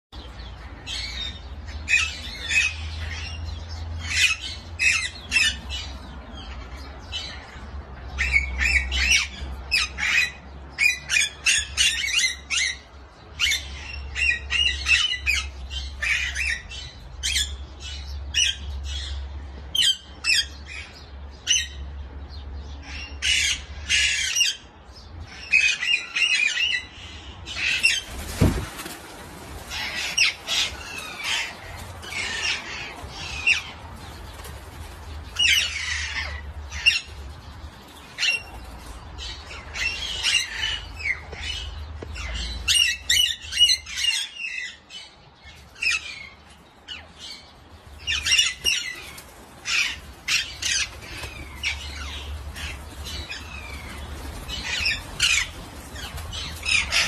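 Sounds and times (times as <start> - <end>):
parakeets squawking: 29.6 - 34.3, 35.3 - 57.0.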